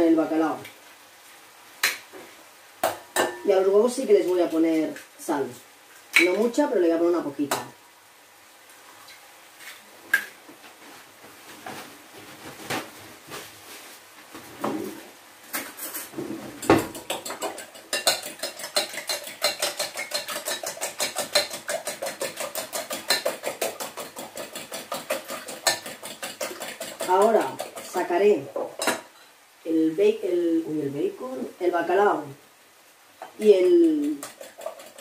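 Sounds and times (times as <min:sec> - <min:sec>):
eggs beaten in glass bowl: 0:16.8 - 0:28.2, 0:33.4 - 0:35.0.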